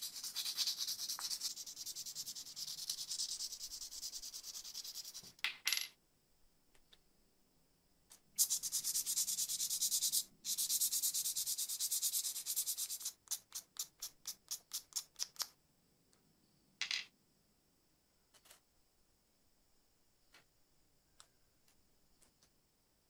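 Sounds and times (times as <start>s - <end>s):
sandpaper scratching metal: 0.0s - 5.2s, 8.4s - 15.2s.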